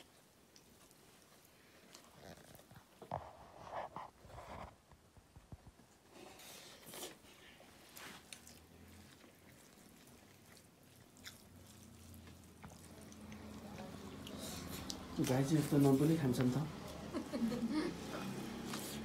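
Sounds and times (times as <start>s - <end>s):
chewing: 0.0s - 3.3s, 5.8s - 15.8s
small clicks and rustles: 0.0s - 6.1s
fingers mixing rice on plates: 6.4s - 17.2s.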